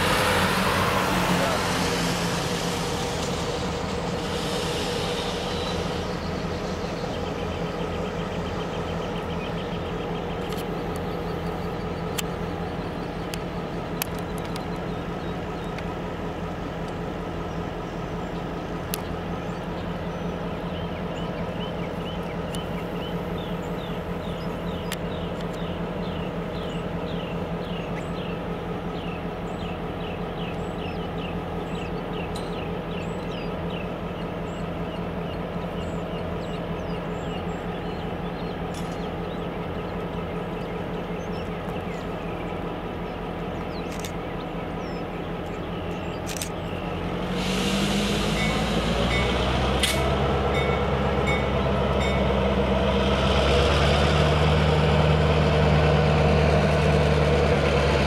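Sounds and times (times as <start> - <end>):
diesel locomotive engine: 0.0 - 58.0
air hissing: 1.8 - 7.3, 47.2 - 50.2.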